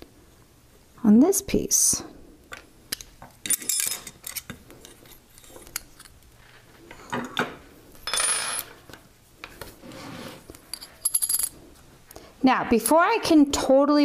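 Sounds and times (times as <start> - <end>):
metal tools clicking and clinking: 2.9 - 6.2, 10.7 - 11.6
metal scrape: 9.8 - 11.6.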